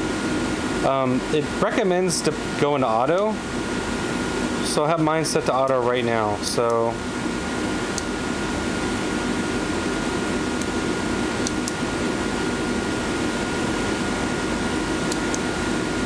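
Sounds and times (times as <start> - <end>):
fan humming with whine: 0.0 - 16.0
push-button switch clicks: 15.1 - 15.4.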